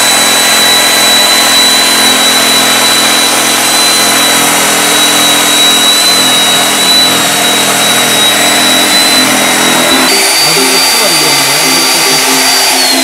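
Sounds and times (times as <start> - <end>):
pipe beveling machine cutting: 0.0 - 13.0
thin high whine: 0.0 - 13.0.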